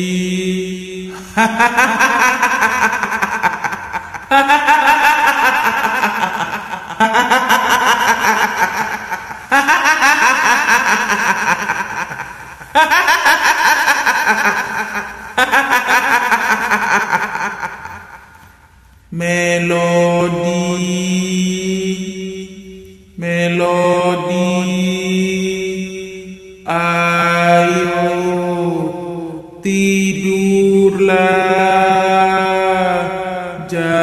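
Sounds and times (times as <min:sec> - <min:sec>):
woman giggling ghost laugh: 0:01.1 - 0:18.4.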